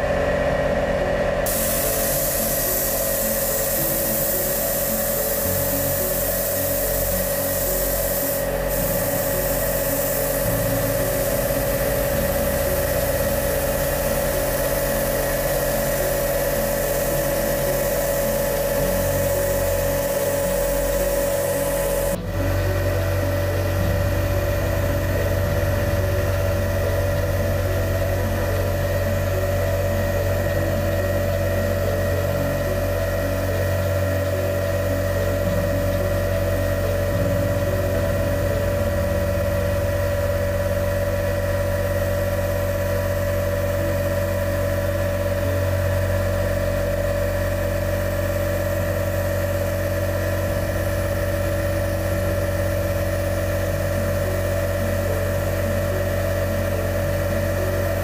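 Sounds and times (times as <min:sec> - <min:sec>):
air compressor humming: 0:00.0 - 0:58.0
spray gun hissing: 0:01.4 - 0:22.6.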